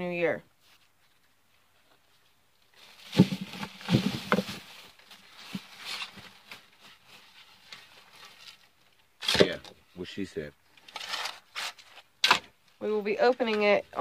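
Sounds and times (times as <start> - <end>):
shovel scraping soil: 10.9 - 12.4.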